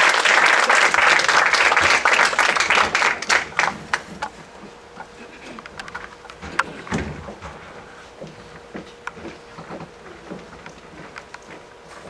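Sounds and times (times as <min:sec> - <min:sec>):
audience applauding: 0:00.0 - 0:04.1.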